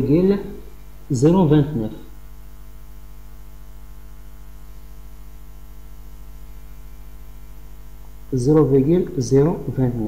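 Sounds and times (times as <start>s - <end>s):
electrical mains hum: 0.0s - 10.0s
faint hiss: 3.9s - 10.0s.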